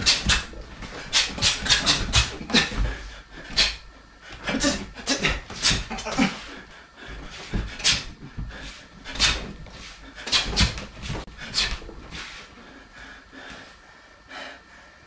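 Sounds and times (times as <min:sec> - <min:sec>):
man huffing sharp breaths: 0:00.0 - 0:10.7.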